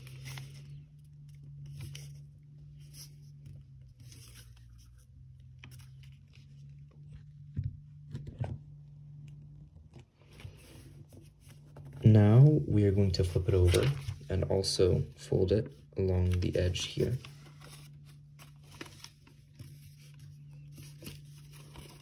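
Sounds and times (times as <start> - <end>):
paper rustling and creasing: 0.0 - 22.0
paper crinkles: 13.0 - 14.4, 16.2 - 22.0.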